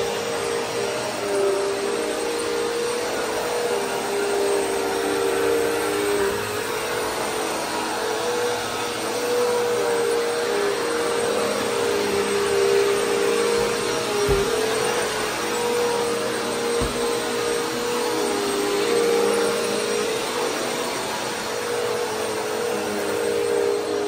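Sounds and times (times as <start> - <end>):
vacuum cleaner on carpet: 0.0 - 24.0.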